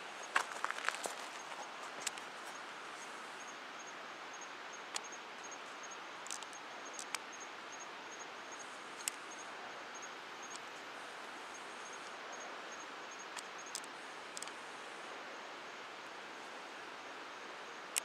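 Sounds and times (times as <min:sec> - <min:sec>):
steady hiss: 0:00.0 - 0:18.0
sharp clicks: 0:06.3 - 0:07.2.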